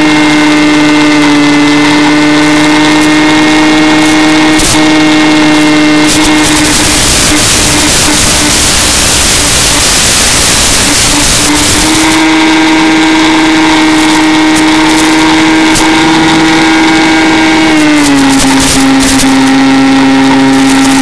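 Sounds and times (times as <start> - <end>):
electric propeller motor running: 0.0 - 21.0
radio static hiss: 5.5 - 12.2.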